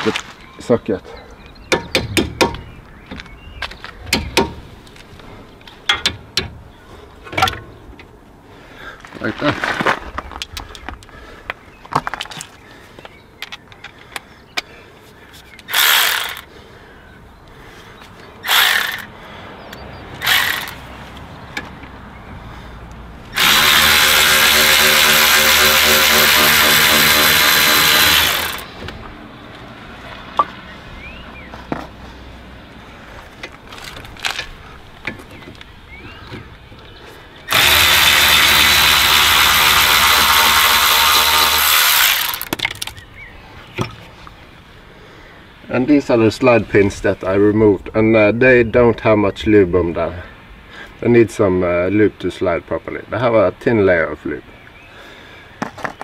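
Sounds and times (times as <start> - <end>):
cordless ratchet motor spinning: 15.7 - 16.4, 18.5 - 19.1, 20.2 - 20.8, 23.4 - 28.7, 37.5 - 42.5.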